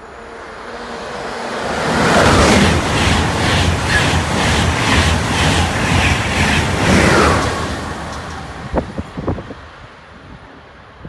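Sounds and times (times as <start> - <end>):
high-speed train passing: 0.0 - 11.0.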